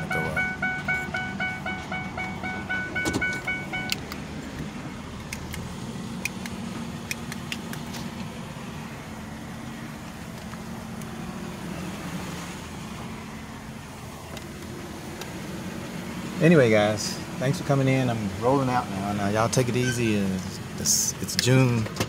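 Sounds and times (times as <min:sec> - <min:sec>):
car engine running inside cabin: 0:00.0 - 0:22.0.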